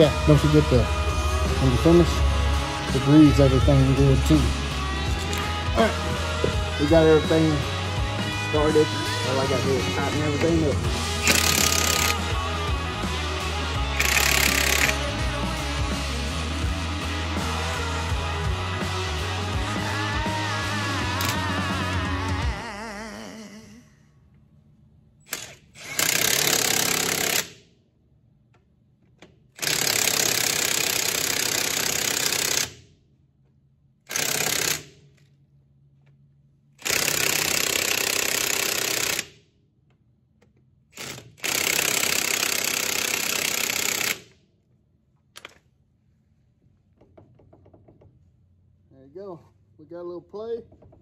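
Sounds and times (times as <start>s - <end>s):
impact wrench hammering: 9.4s - 12.3s, 14.0s - 15.0s, 25.3s - 27.6s, 34.1s - 35.0s, 40.5s - 44.4s.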